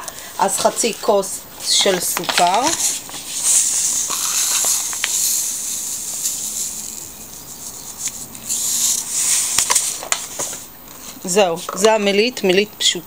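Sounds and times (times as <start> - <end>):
sugar pouring hiss: 1.7 - 10.7.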